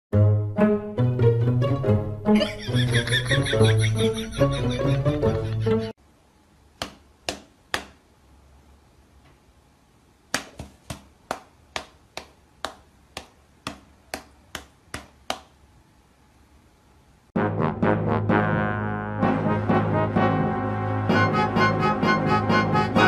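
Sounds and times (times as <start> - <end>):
hand and paws patting: 6.8 - 8.0, 10.3 - 15.5.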